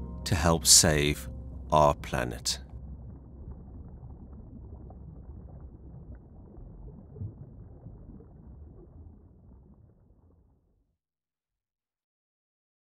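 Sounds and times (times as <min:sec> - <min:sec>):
muffled underwater water noise: 0:01.8 - 0:10.9.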